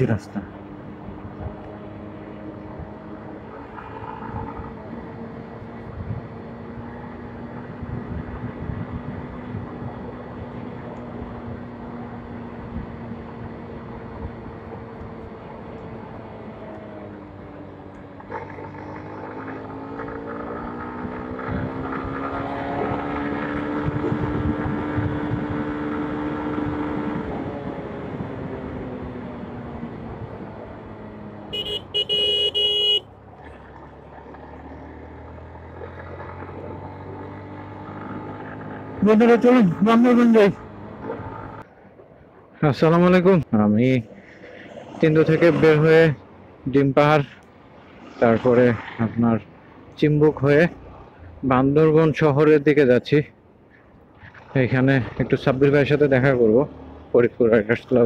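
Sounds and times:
wind buffeting microphone: 23.6 - 25.9
horn sounding: 31.5 - 33.1.

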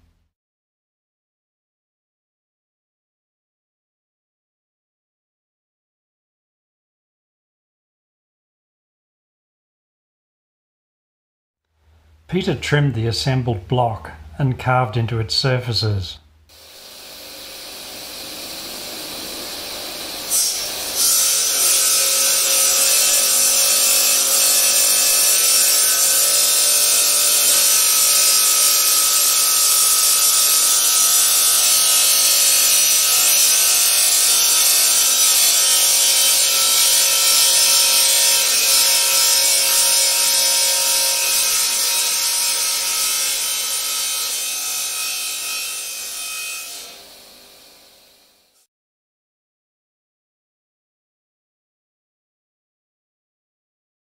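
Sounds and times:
wet saw cutting glass: 16.5 - 48.7.

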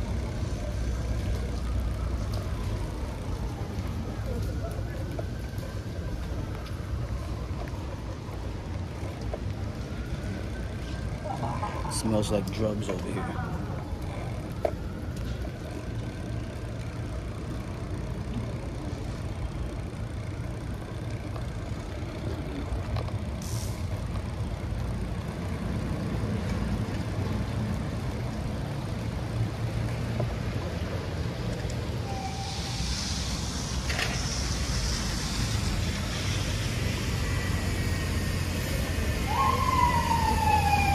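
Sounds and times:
bicycle tyres on wet pavement: 0.0 - 40.9
water spray hiss: 32.1 - 37.7.

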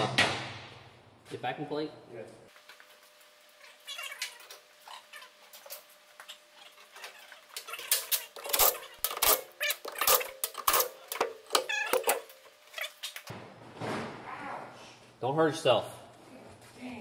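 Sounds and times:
metallic clicks and clanks: 7.6 - 12.4
impact wrench: 7.9 - 12.3.

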